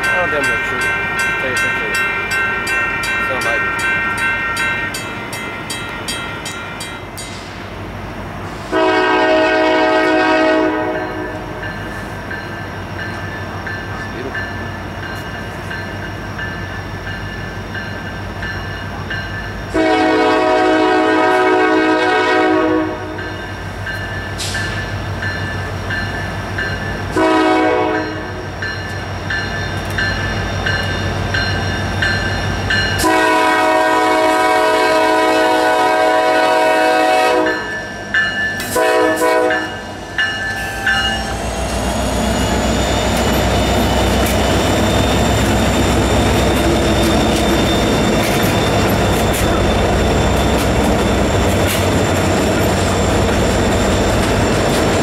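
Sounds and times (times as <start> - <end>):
crossing bell dinging: 0.0 - 7.7, 10.0 - 20.4, 23.0 - 55.0
diesel locomotive rumble: 0.0 - 55.0
locomotive air horn blasts: 8.6 - 11.6, 19.7 - 23.2, 27.2 - 28.3, 33.0 - 37.7, 38.7 - 39.8.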